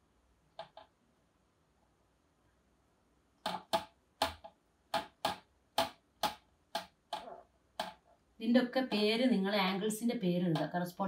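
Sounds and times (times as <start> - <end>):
marker ticking on whiteboard: 0.5 - 1.0, 3.4 - 8.1
marker scratching on whiteboard: 3.4 - 8.2.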